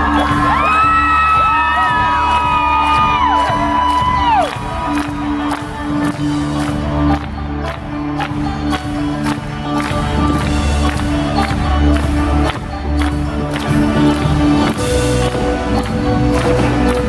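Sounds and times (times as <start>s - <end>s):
crowd whooping: 0.0s - 4.8s
live folk-rock band playing: 2.1s - 17.0s.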